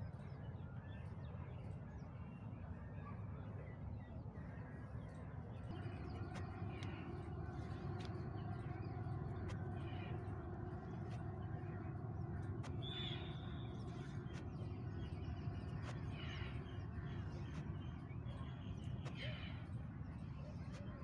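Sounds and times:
steady low rumble: 0:05.5 - 0:21.0.

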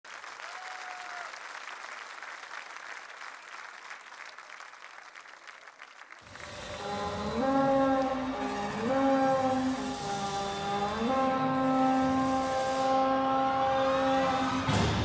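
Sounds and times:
studio audience applauding: 0:00.0 - 0:06.7.

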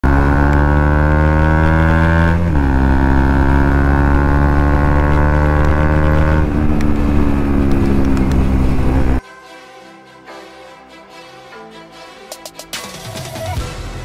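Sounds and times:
motorcycle engine accelerating: 0:00.0 - 0:09.2.

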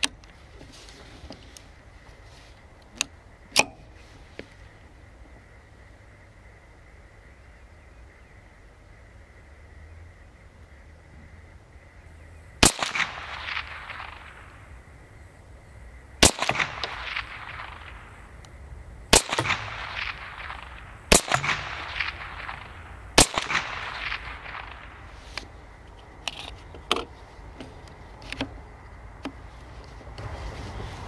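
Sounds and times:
rifle shots with echo: 0:12.6 - 0:14.9, 0:16.2 - 0:18.4, 0:19.1 - 0:25.2.

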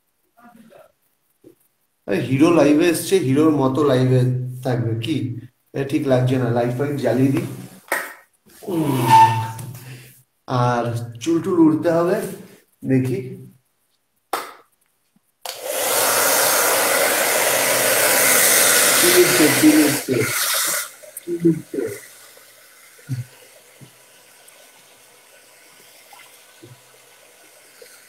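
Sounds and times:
hair dryer running: 0:15.5 - 0:20.9.

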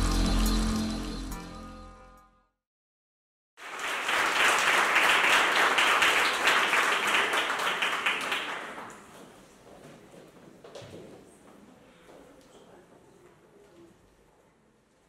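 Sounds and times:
small audience applauding: 0:03.6 - 0:09.5.

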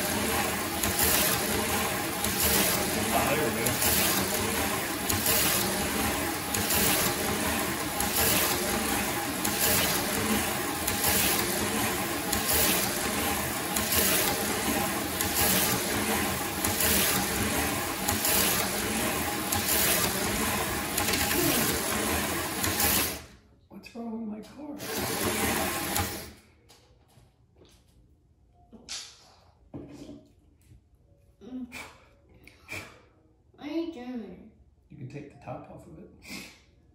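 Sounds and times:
slot car motors whirring: 0:00.0 - 0:23.4, 0:24.8 - 0:26.4.

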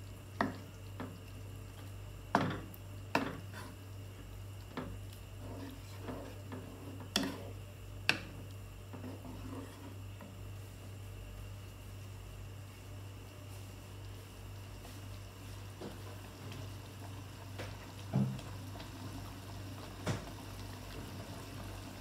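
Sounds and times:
wooden spatula stirring sauce: 0:04.7 - 0:07.6, 0:08.3 - 0:10.3.

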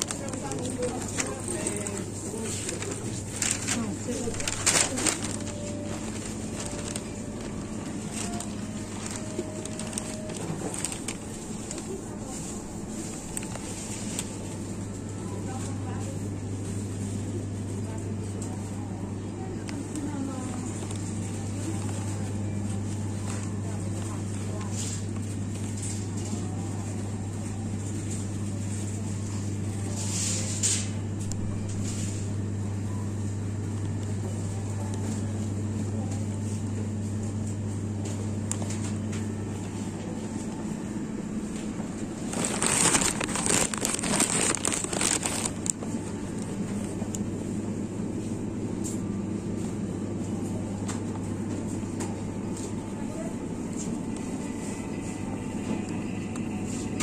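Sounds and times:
rustling and crackling: 0:00.0 - 0:14.6, 0:41.6 - 0:46.0
refrigerator hum: 0:00.0 - 0:57.0.

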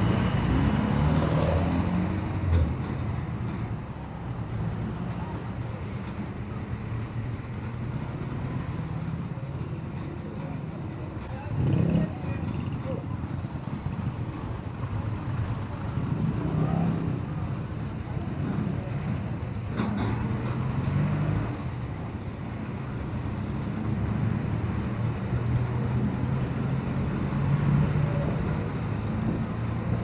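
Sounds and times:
road noise: 0:00.0 - 0:30.0.

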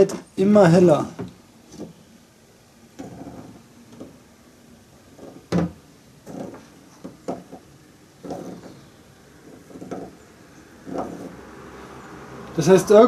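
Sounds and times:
rubbing against plastic: 0:06.2 - 0:10.2, 0:10.8 - 0:11.4.

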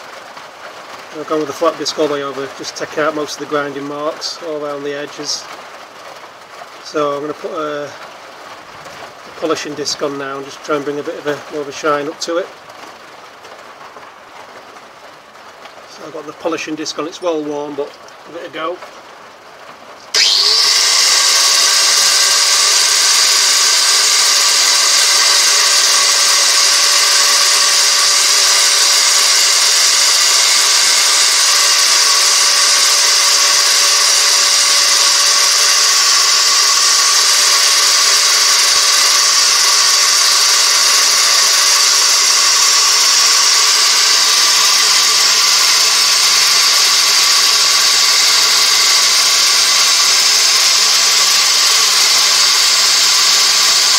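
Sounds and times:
angle grinder polishing blade: 0:20.1 - 0:53.9.

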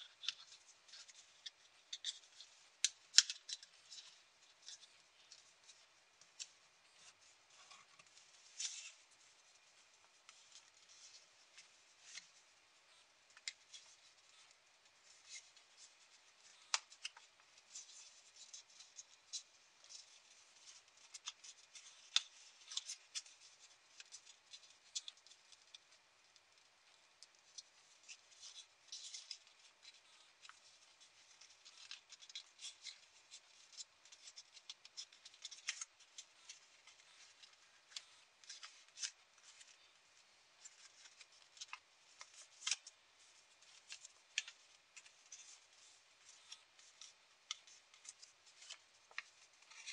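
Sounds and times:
paper crinkling and crackling: 0:00.0 - 0:49.9.

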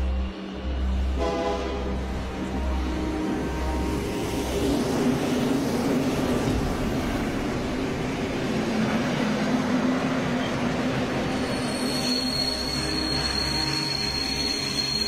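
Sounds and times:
metro train rumbling on rails: 0:00.0 - 0:15.0
high thin squeal: 0:11.2 - 0:15.0.

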